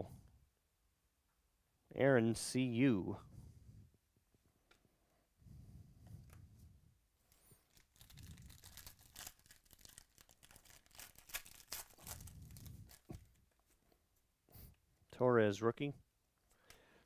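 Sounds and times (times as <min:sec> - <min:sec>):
foil wrapper tearing and crinkling: 0:07.5 - 0:13.4.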